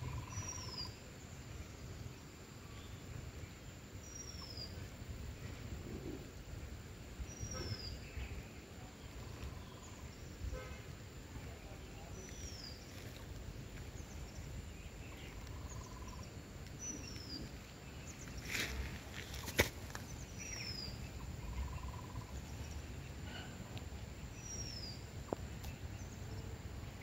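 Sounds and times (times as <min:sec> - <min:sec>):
bird trill: 0:00.0 - 0:01.0
rustle: 0:00.0 - 0:27.0.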